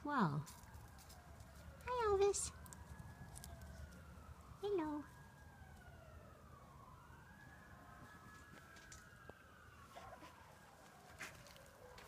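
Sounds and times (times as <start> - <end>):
faint emergency siren wailing: 0.0 - 12.0.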